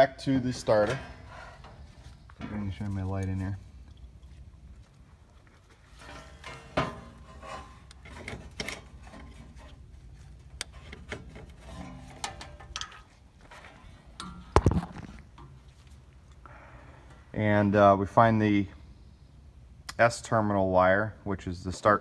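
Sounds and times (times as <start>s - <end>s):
handling noise rubbing and scraping: 0.0s - 16.4s.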